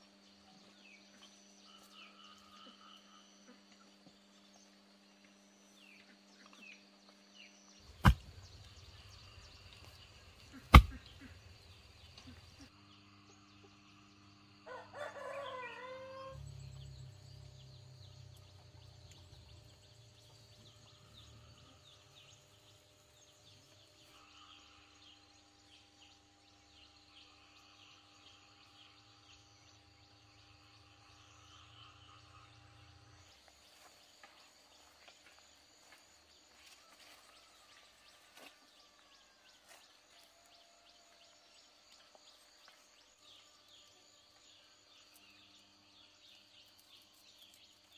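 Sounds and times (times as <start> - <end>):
insects: 0.0 - 47.9
rooster crowing: 14.6 - 16.5.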